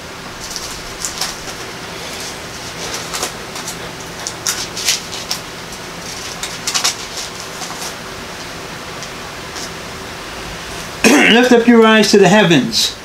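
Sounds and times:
steady hiss: 0.0 - 13.0
paper rustling: 0.3 - 8.0.

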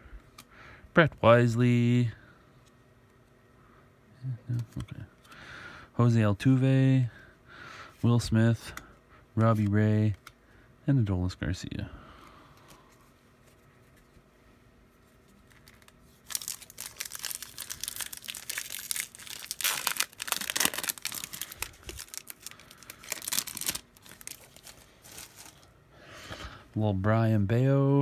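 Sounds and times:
foil wrapper tearing and crinkling: 15.4 - 25.7.

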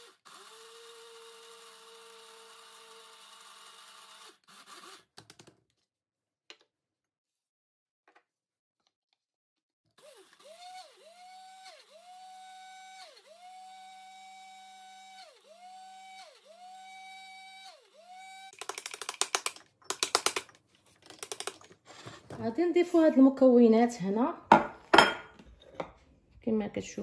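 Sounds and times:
spice grinder motor whine: 0.0 - 5.0, 10.0 - 18.7
grinder rattling and knocking: 18.5 - 22.6.

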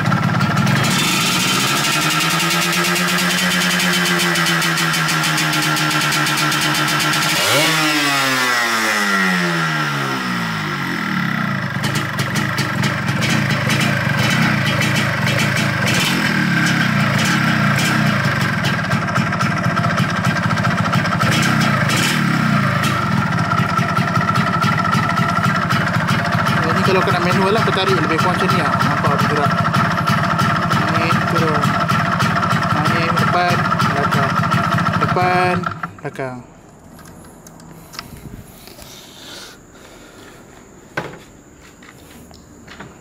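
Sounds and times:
two-stroke engine revving and idling: 0.0 - 36.3
engine popping at idle: 11.3 - 36.2.

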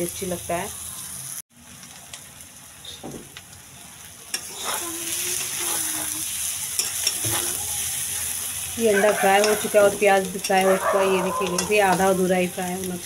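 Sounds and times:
food sizzling in oil: 0.0 - 13.0
metal spatula scraping pan: 4.4 - 7.7, 8.8 - 12.1.

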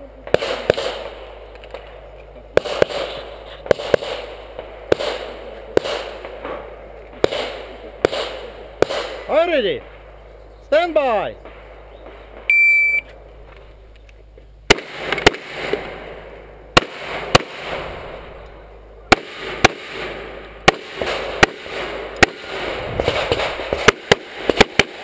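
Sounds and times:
pistol shots: 0.3 - 1.9, 2.6 - 9.3, 14.7 - 16.1, 16.8 - 18.3, 19.1 - 25.0.

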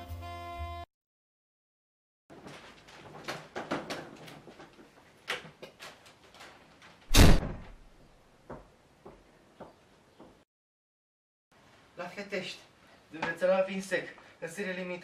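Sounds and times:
door slamming shut: 7.1 - 7.8.

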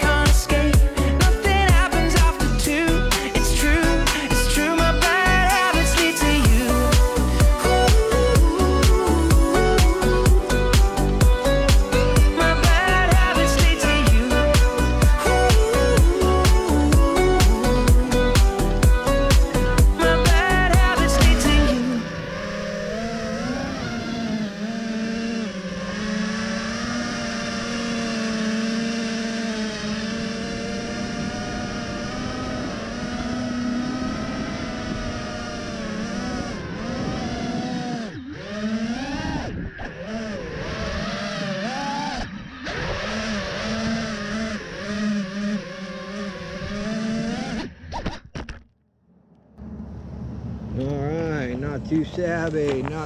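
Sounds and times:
drone motors whining: 0.0 - 48.6, 49.3 - 53.0
man talking: 50.8 - 53.0.

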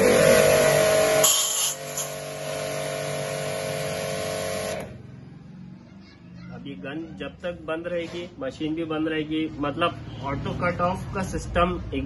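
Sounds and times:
pressure washer motor whine: 0.0 - 5.0.

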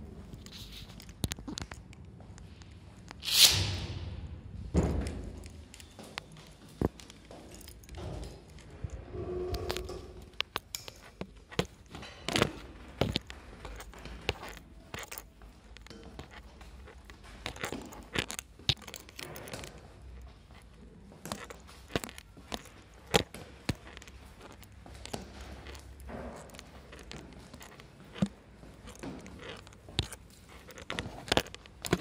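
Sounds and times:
footsteps in sneakers: 10.6 - 32.0.

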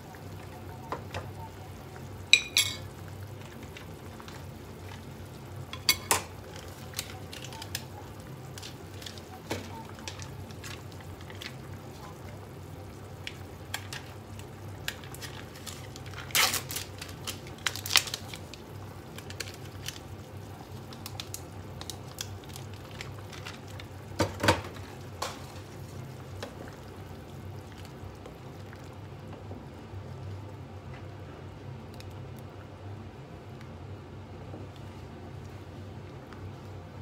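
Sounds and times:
sharp cracks and crunches: 15.2 - 18.4.

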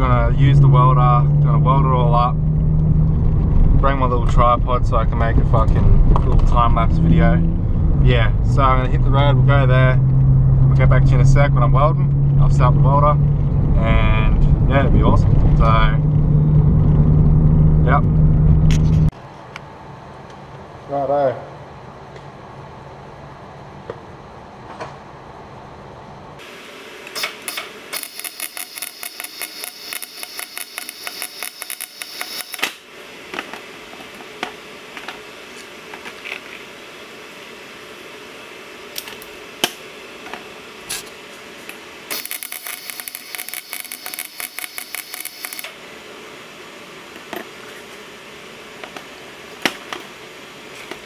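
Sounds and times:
welder crackling: 26.4 - 33.6, 41.6 - 45.8.

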